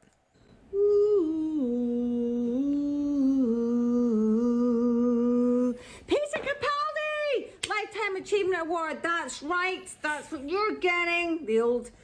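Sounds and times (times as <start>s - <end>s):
person humming: 0.4s - 5.8s.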